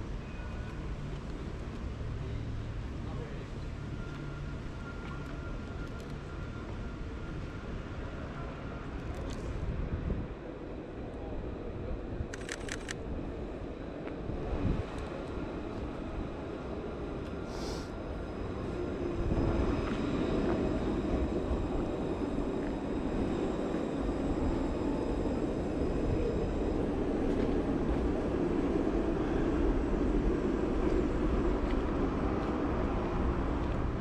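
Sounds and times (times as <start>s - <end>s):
tram wheels rumbling on rail: 0.0s - 34.0s
brief hiss: 17.5s - 17.9s.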